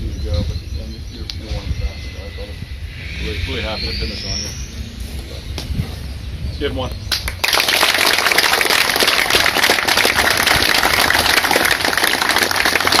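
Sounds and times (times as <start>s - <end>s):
crowd applauding: 7.1s - 13.0s.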